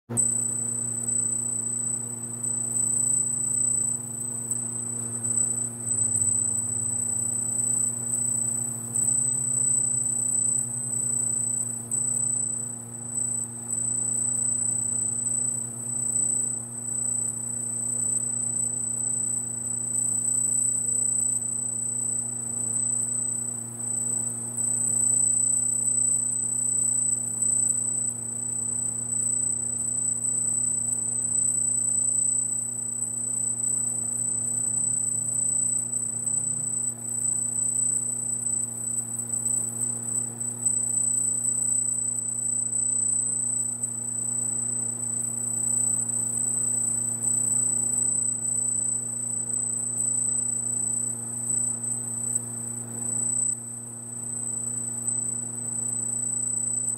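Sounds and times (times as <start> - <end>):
high-pitched laser whine: 0.2 - 44.7.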